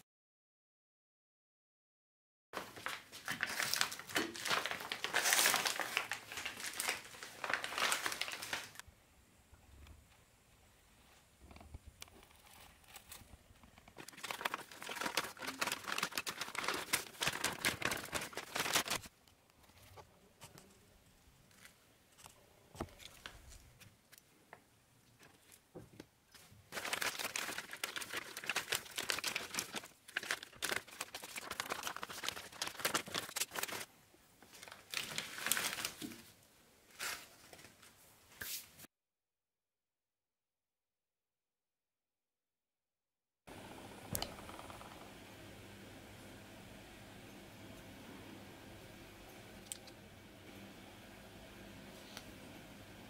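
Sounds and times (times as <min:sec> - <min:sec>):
plastic wrapping crinkling: 0:02.6 - 0:08.8, 0:12.4 - 0:19.1, 0:26.4 - 0:38.0.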